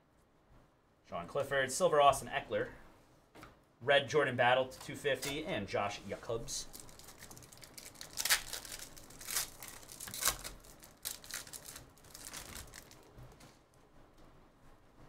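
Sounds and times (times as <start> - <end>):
foil wrapper tearing and crinkling: 6.6 - 13.2.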